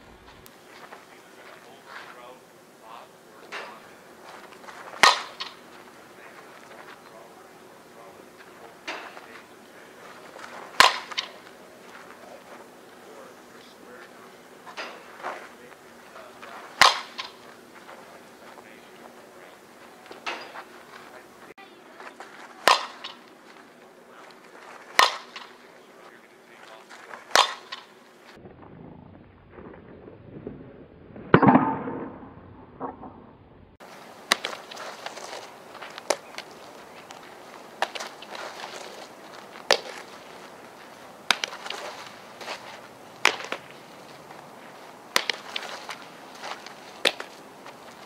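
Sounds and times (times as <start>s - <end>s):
bat striking softballs: 3.4s - 12.7s, 14.6s - 20.9s, 22.1s - 25.9s, 26.6s - 28.0s, 31.3s - 33.2s, 33.8s - 48.0s.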